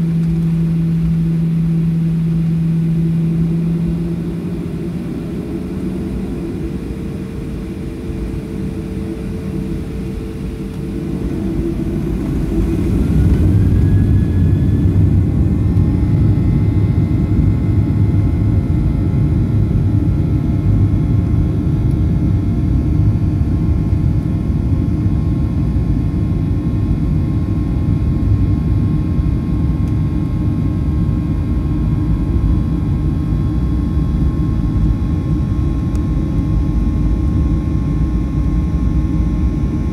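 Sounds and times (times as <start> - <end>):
jet engines spooling up: 0.0 - 18.0.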